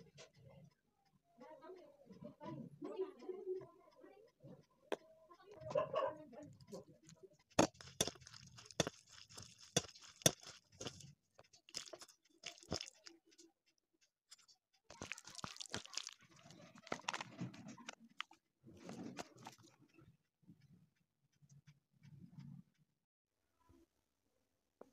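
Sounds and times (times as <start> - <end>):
hand mixing wet batter: 6.5 - 19.7.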